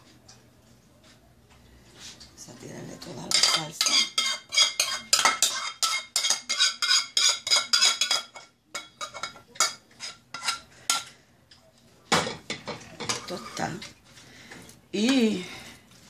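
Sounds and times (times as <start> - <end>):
metal spoon scraping saucepan: 3.0 - 11.2, 12.6 - 13.9.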